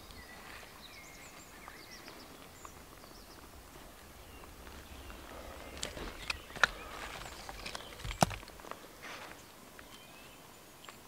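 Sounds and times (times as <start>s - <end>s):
wood pieces clacking together: 5.7s - 8.8s.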